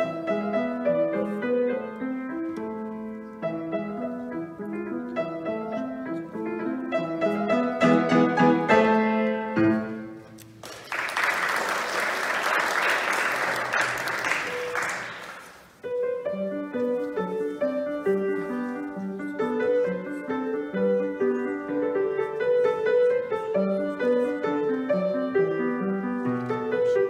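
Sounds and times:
upright piano playing: 0:00.0 - 0:10.5, 0:15.8 - 0:27.0
people clapping: 0:10.4 - 0:15.7.

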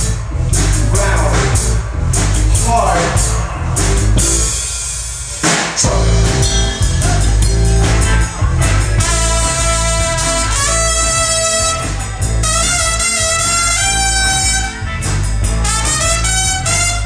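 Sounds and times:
live rock band playing: 0:00.0 - 0:17.0
trumpet sustained notes: 0:08.8 - 0:17.0.

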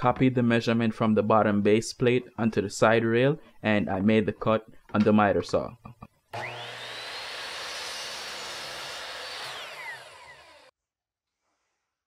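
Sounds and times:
miter saw whining: 0:06.4 - 0:10.7
saw cutting plywood: 0:06.4 - 0:10.7.

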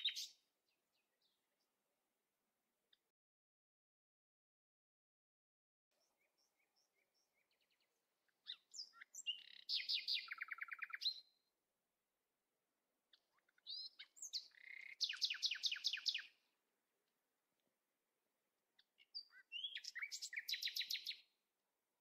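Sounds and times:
songbird singing trills: 0:00.0 - 0:01.4, 0:06.0 - 0:11.4, 0:13.1 - 0:16.4, 0:18.8 - 0:21.3.

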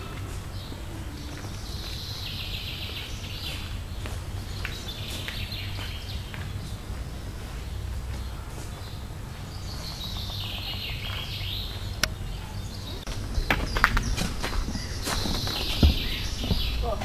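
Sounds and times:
birds singing: 0:00.0 - 0:17.0
footsteps on wooden boardwalk: 0:00.0 - 0:17.0.

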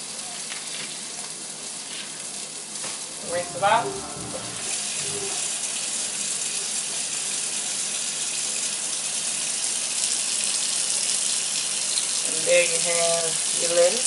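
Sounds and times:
kitchen tap running: 0:03.0 - 0:06.6.

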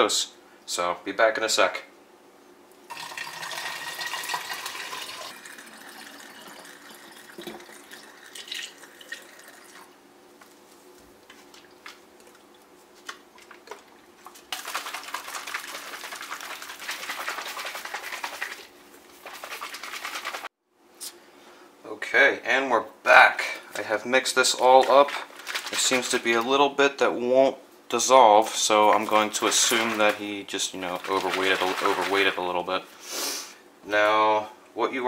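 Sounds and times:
water pouring into bottle: 0:02.9 - 0:09.9, 0:13.6 - 0:20.5, 0:24.6 - 0:26.2, 0:28.8 - 0:32.4
liquid sloshing in bottle: 0:11.3 - 0:20.5, 0:24.4 - 0:26.4, 0:28.6 - 0:32.6.

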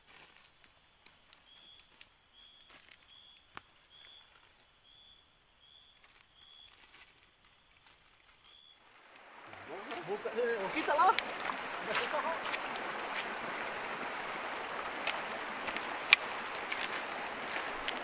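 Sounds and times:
insect chirping: 0:00.0 - 0:18.0
insects buzzing: 0:00.0 - 0:18.0
faint clicks: 0:13.6 - 0:18.0.

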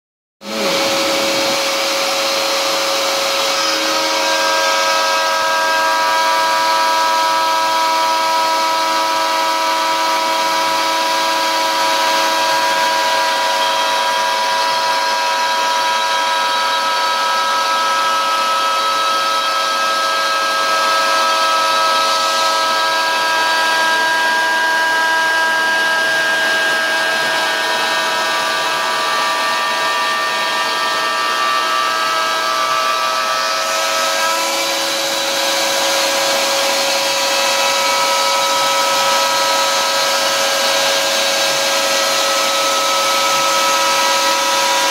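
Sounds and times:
vacuum drawing dust: 0:00.4 - 0:04.8
router whining: 0:00.4 - 0:44.9.

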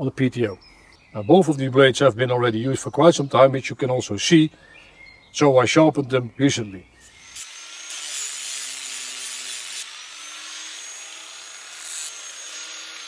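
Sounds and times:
angle grinder grinding steel: 0:07.0 - 0:13.0.

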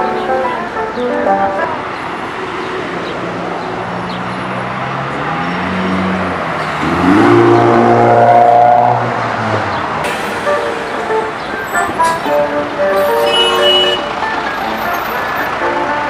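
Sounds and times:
vehicle engine accelerating: 0:02.4 - 0:13.2
passing traffic hiss: 0:10.0 - 0:16.0.

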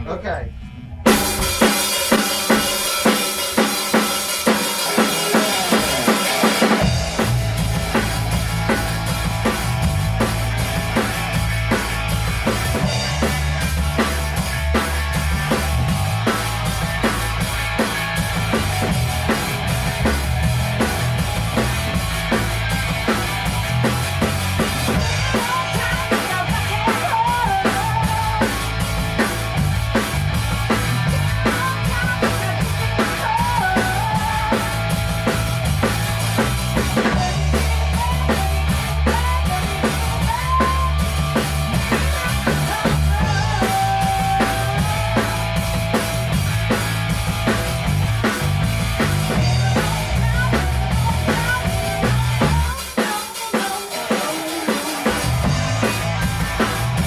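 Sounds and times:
bass line: 0:00.0 - 0:52.8, 0:55.0 - 0:57.0
drum kit beat: 0:00.0 - 0:57.0.

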